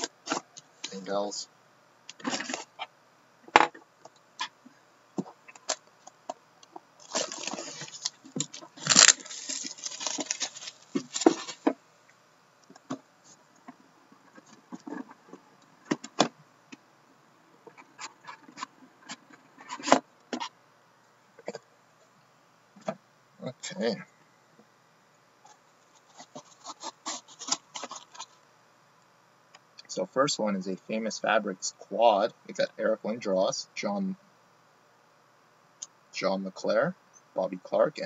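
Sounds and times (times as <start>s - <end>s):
cardboard scraping and rustling: 2.2s - 2.8s, 7.0s - 11.8s, 25.9s - 28.4s.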